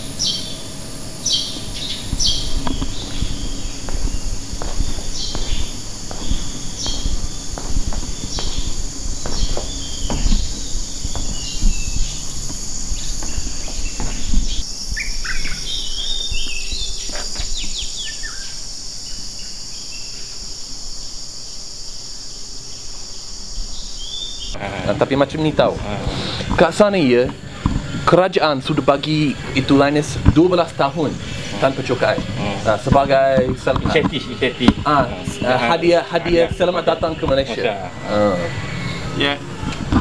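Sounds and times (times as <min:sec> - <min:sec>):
birds chirping and calling: 0:00.0 - 0:18.6, 0:24.0 - 0:39.4
insects droning: 0:00.0 - 0:40.0
low thumps and knocks: 0:01.5 - 0:14.6.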